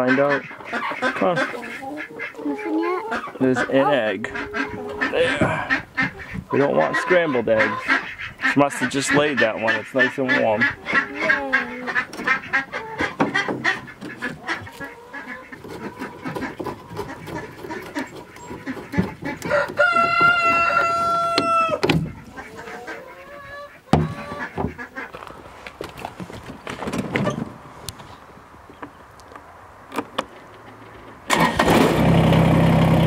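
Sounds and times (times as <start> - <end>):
chickens clucking: 0.0 - 31.6
rooster crowing: 19.4 - 21.9.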